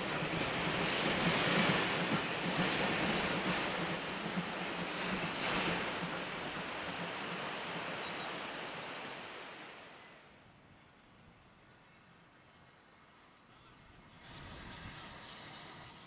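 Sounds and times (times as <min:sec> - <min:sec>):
steam locomotive rushing past: 0:00.0 - 0:10.3, 0:12.4 - 0:16.0.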